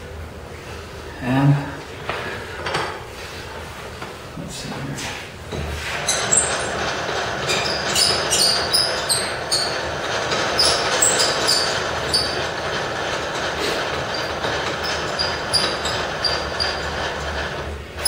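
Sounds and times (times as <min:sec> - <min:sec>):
milling machine cutting metal: 0:06.0 - 0:18.0
high-pitched cutter squeals: 0:07.5 - 0:09.9, 0:10.5 - 0:12.5, 0:14.1 - 0:16.9.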